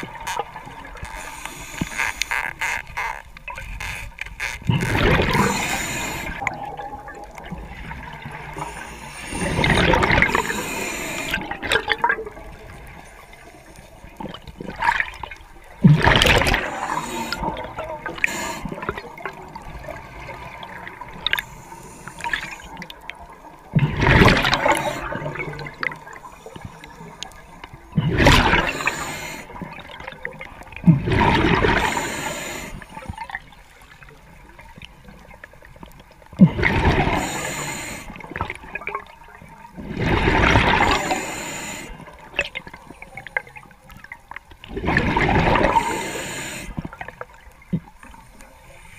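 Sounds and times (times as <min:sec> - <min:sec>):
exhaled bubbles gushing: 0:04.7 - 0:13.4, 0:14.0 - 0:21.5, 0:22.1 - 0:32.1, 0:36.3 - 0:41.3, 0:42.0 - 0:48.0
regulator hissing: 0:05.4 - 0:06.4, 0:10.3 - 0:11.4, 0:18.2 - 0:18.8.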